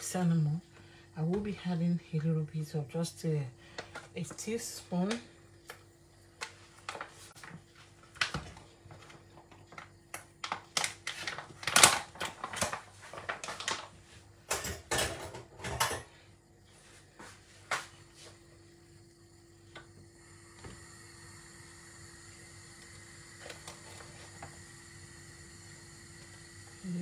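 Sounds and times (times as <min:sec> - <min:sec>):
faint steady hum: 0:00.0 - 0:27.0
kitchen utensils clicking and scraping: 0:14.5 - 0:16.1.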